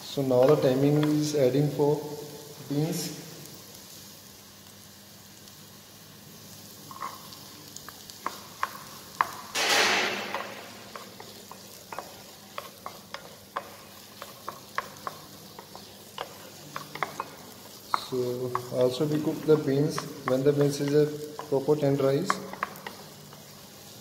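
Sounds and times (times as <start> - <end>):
vegetables sizzling in a pan: 0.0 - 24.0
spatula tapping a pan: 0.4 - 1.2, 7.8 - 23.9.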